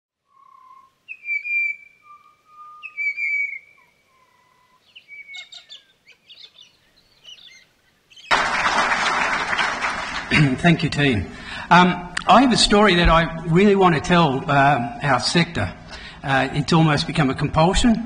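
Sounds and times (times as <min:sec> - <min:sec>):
bird calls: 0:00.2 - 0:08.3
applause: 0:08.3 - 0:11.6.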